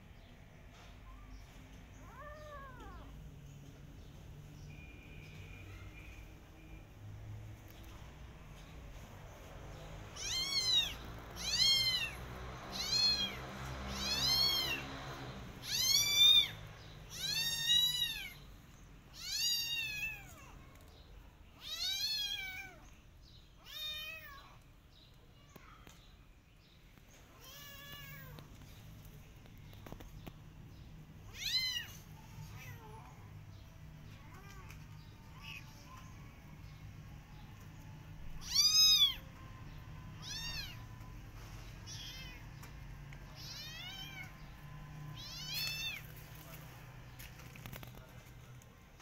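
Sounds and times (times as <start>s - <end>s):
kitten meowing: 2.0s - 3.1s, 10.2s - 14.8s, 38.4s - 39.2s, 40.2s - 40.8s, 43.4s - 44.4s, 45.2s - 46.1s.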